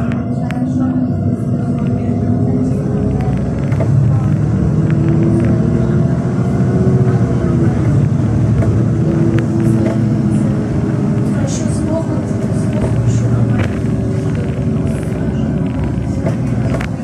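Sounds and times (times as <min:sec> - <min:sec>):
bus engine drone: 0:00.0 - 0:17.0
low road rumble: 0:00.0 - 0:17.0
faint clicks and rattles: 0:02.9 - 0:06.5, 0:07.8 - 0:17.0.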